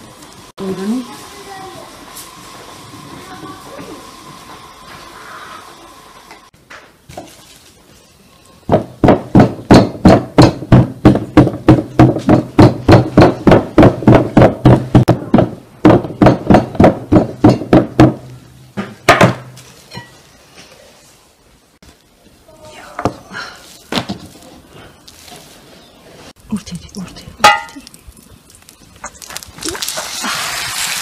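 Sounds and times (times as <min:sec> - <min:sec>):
rolling pin knocking on wooden board: 0:08.7 - 0:18.2.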